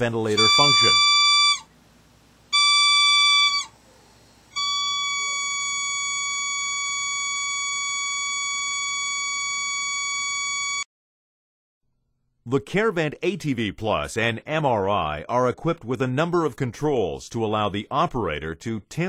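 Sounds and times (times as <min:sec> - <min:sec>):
alarm beep: 0:00.3 - 0:01.7, 0:02.5 - 0:03.7, 0:04.6 - 0:10.8
continuous alarm tone: 0:00.3 - 0:01.7, 0:02.5 - 0:03.8, 0:04.5 - 0:10.9.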